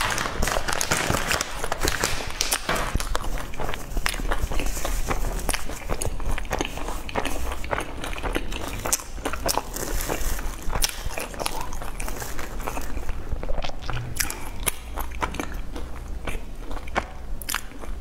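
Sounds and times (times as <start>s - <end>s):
paper tissue crinkling: 0.0s - 6.4s
chewing: 3.0s - 18.0s.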